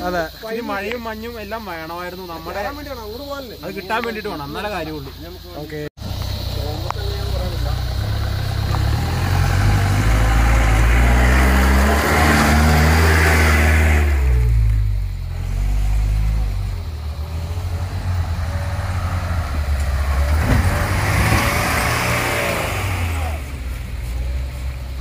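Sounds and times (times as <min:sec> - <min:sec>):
engine revving hard: 0:07.3 - 0:23.8.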